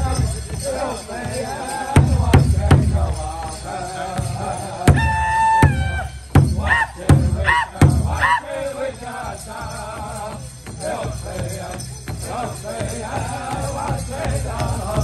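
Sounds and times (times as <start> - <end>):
group singing: 0.0 - 15.0
hide drum steady beat: 0.0 - 15.0
high sliding cries: 4.9 - 8.7.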